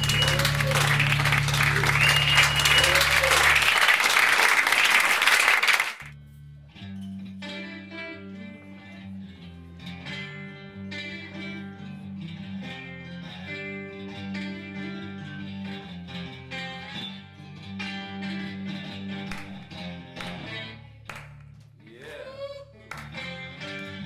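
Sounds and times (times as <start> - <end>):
guitar picking slow notes: 0.0 - 3.7, 6.2 - 20.8
brief whistle: 0.0 - 4.0
applause-like noise: 0.0 - 6.1.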